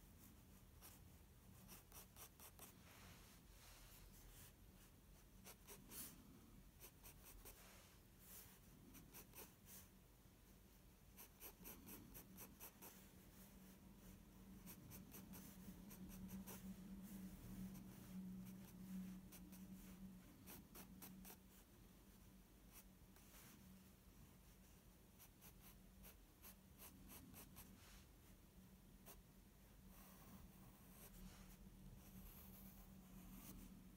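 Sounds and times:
faint low hum: 0.0 - 33.9
pencil scratching on paper: 0.1 - 3.3, 4.4 - 6.2, 6.8 - 9.9, 11.1 - 21.7, 24.5 - 27.8, 29.9 - 33.7.

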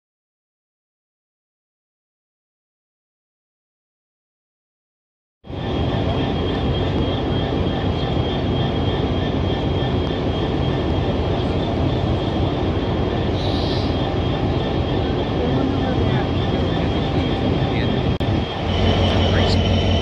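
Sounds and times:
diesel locomotive engine rumble: 5.5 - 20.0
high whine: 5.5 - 20.0.

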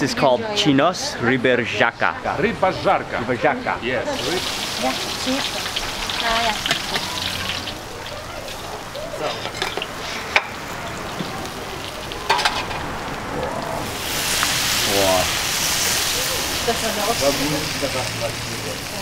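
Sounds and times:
fish sizzling in hot oil: 4.1 - 19.0.

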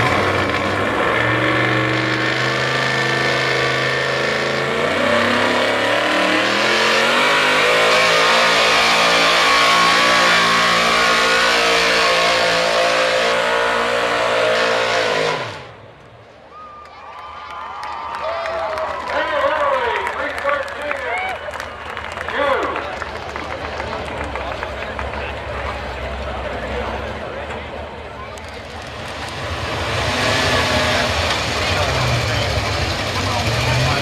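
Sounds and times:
pickup truck engine at full throttle: 0.0 - 15.9, 21.6 - 34.0.

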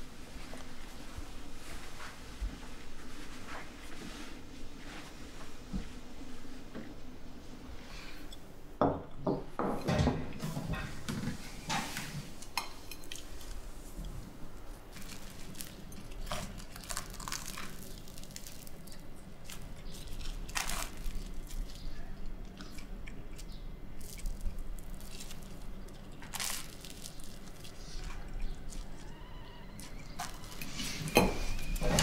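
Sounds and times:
low steady hum: 0.0 - 32.0
chewing: 14.9 - 32.0
crunching bites of toast: 15.0 - 21.9.

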